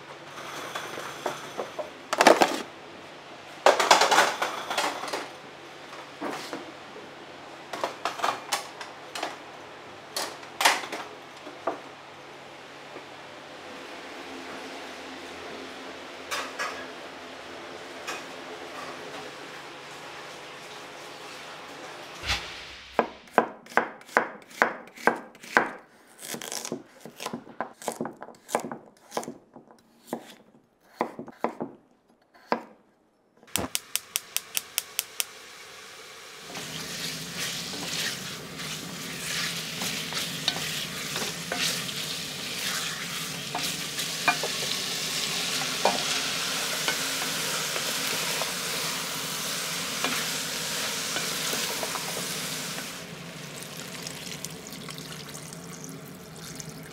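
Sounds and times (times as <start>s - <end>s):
food sizzling in a pan: 33.6s - 56.9s.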